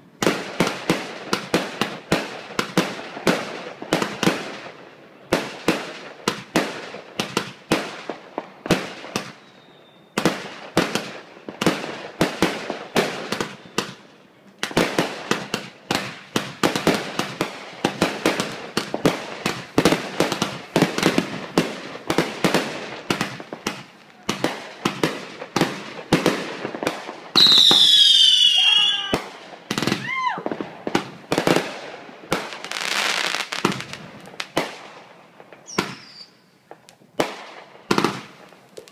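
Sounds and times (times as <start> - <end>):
fireworks bangs: 0.0 - 38.9
whistling firework: 8.9 - 11.1, 13.0 - 14.0, 26.1 - 30.6, 35.6 - 36.6.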